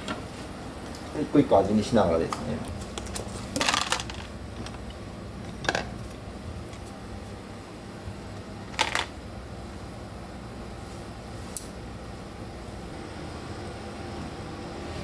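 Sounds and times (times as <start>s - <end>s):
soft food preparation noises: 0.0s - 15.0s
steady low hum: 0.0s - 15.0s.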